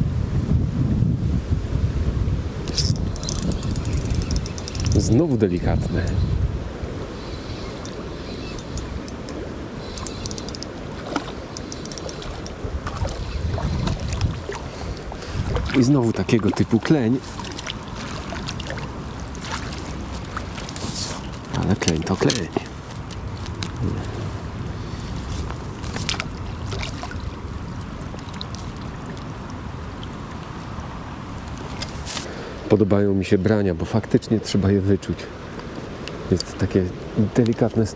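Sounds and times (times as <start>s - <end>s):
wind buffeting microphone: 0.0s - 32.1s
river rushing: 2.4s - 32.8s
small clicks and ticks: 2.7s - 6.2s, 7.8s - 10.7s, 11.5s - 12.6s.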